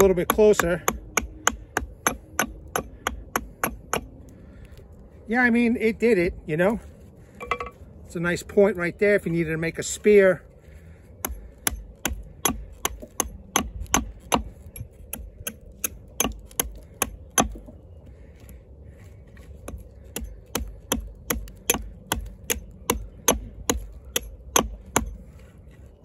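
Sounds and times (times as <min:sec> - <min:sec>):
axe chopping wood: 0:00.0 - 0:04.1, 0:11.2 - 0:17.7, 0:19.6 - 0:25.3.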